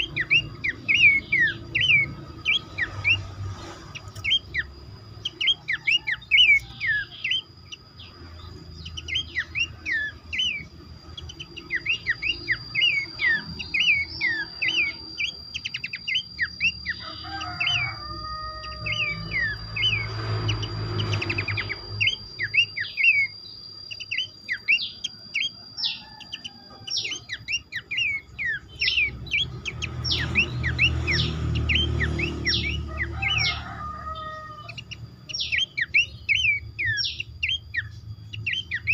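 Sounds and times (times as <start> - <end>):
birds chirping in chorus: 0.0 - 38.9
thin steady high tone: 0.0 - 38.9.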